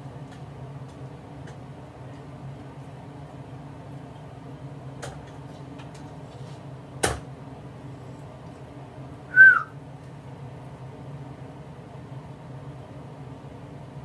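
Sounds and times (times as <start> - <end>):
whistle-like chirp sliding down: 9.3 - 9.7.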